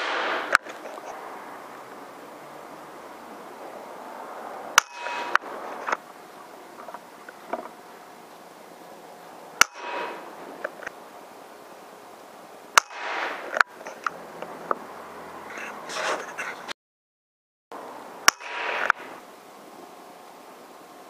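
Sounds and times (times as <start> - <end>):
air rifle shots: 0.0 - 1.1, 4.7 - 6.0, 9.6 - 10.8, 12.7 - 13.8, 18.2 - 19.2.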